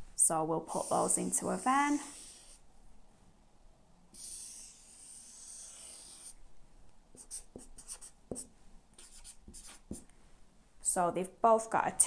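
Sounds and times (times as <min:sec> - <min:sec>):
marker pen scratching on paper: 0:00.7 - 0:02.6, 0:04.1 - 0:06.4, 0:07.1 - 0:10.0.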